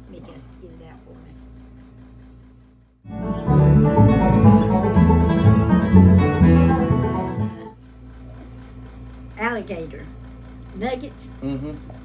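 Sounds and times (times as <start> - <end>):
instrumental music cue: 3.1 - 7.8.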